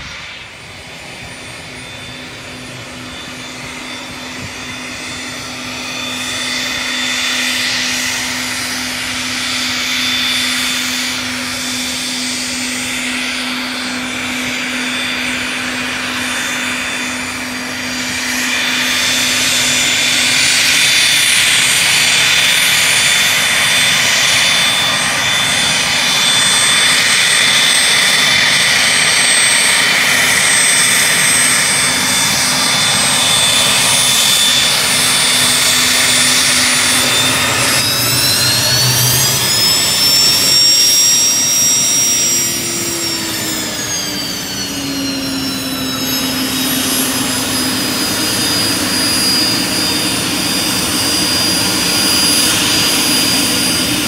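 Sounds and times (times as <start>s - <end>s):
jet engines whining: 0.0s - 54.0s.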